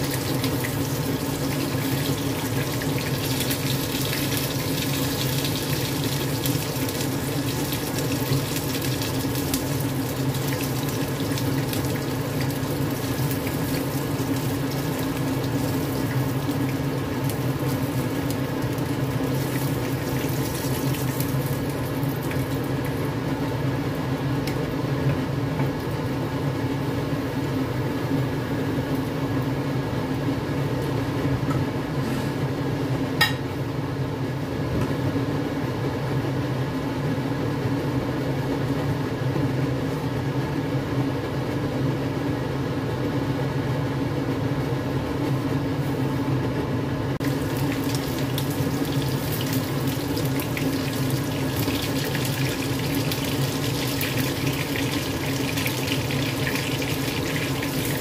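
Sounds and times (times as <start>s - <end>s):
chicken sizzling in hot oil: 0.0s - 29.6s, 47.2s - 58.0s
hum and hiss: 0.0s - 34.9s.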